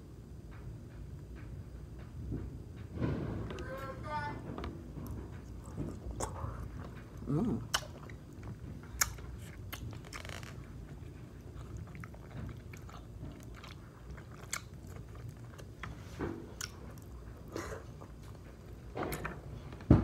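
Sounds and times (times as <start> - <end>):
person chewing: 5.0 - 18.9.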